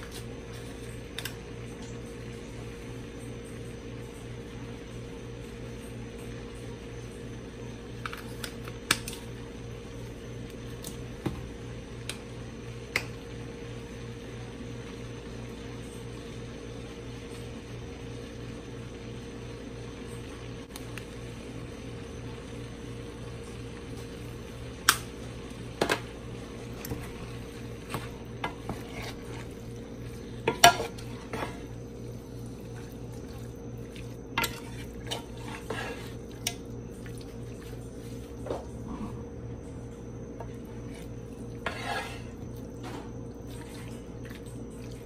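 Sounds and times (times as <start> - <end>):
steady low hum: 0.0 - 45.0
spatula scraping and knocking pan: 26.9 - 31.7, 34.4 - 36.6, 40.4 - 43.1.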